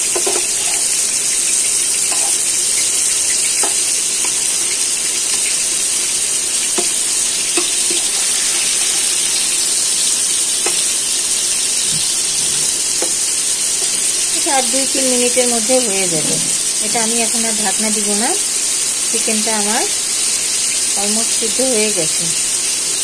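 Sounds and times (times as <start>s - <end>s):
metal spatula tapping pan: 0.0s - 1.0s, 2.0s - 2.6s, 3.3s - 4.5s, 6.7s - 8.2s
food sizzling in oil: 0.0s - 23.0s.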